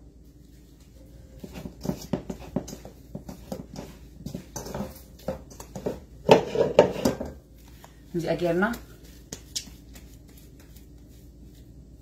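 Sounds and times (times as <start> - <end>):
hands squelching soft dough: 7.4 - 12.0.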